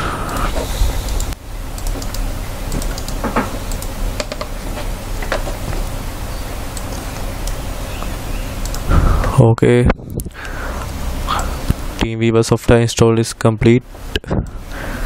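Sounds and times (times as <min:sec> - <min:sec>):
background hiss: 0:00.0 - 0:09.6
low hum: 0:00.0 - 0:15.0
keyboard and mouse clicks: 0:00.2 - 0:04.5, 0:08.6 - 0:08.9.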